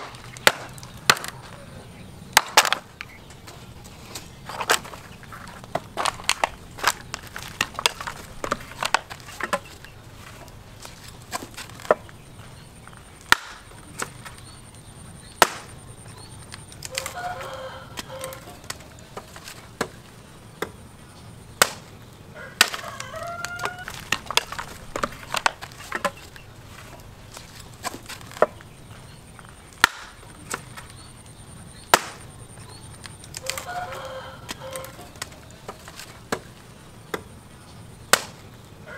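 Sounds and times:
axe chopping wood: 0.0 - 1.5, 2.3 - 2.9, 5.6 - 12.2, 13.2 - 14.4, 15.3 - 15.8, 18.0 - 20.0, 21.5 - 22.0, 22.6 - 28.7, 29.7 - 31.0, 31.8 - 32.4, 33.2 - 37.3, 38.1 - 38.5
rooster crowing: 0.9 - 2.0, 16.9 - 18.7, 22.3 - 24.0, 33.4 - 35.2.

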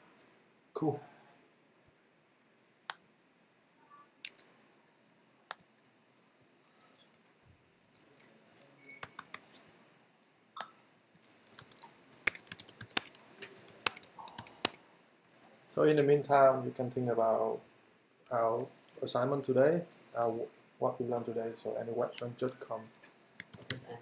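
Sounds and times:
typing on computer keyboard: 7.8 - 9.6, 11.2 - 14.8, 21.7 - 22.8, 23.4 - 23.9.

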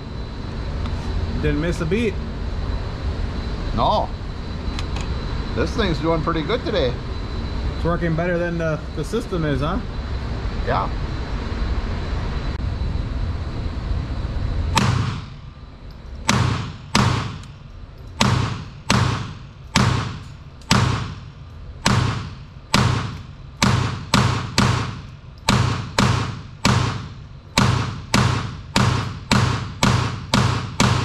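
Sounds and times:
pistol shots echoing indoors: 16.3 - 17.5, 18.1 - 31.0.

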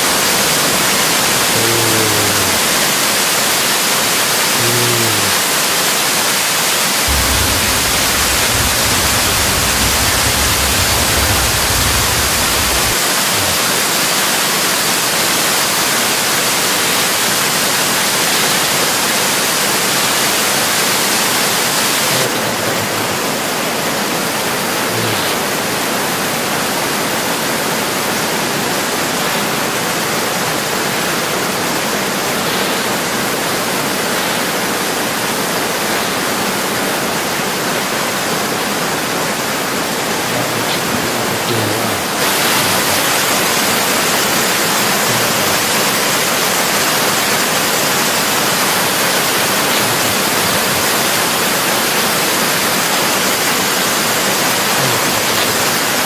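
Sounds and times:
rain: 0.0 - 56.0
storm wind: 7.1 - 13.6.

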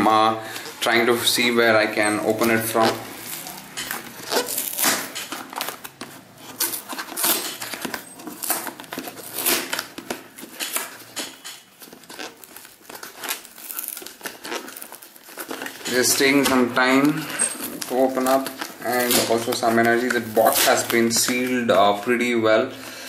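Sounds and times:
cardboard box being torn open: 2.4 - 11.1, 11.8 - 21.5.

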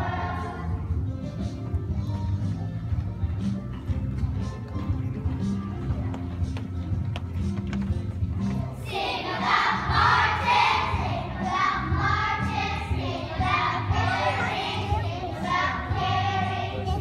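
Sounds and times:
children's choir singing: 0.0 - 1.1, 8.8 - 17.0.

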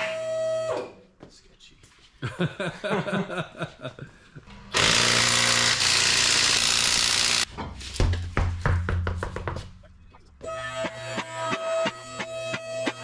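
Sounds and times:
impact wrench hammering: 4.7 - 9.4.

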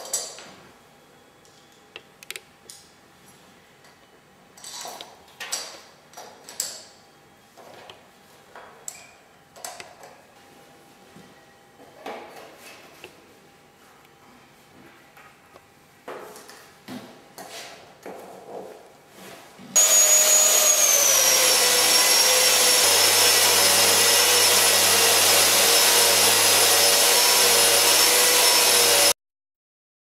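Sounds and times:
drywall sander running: 19.8 - 29.2.

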